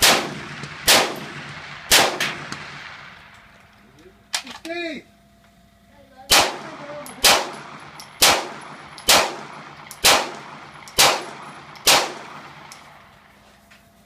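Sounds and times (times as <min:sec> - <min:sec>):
pistol shots: 0:00.0 - 0:03.2, 0:06.3 - 0:13.1.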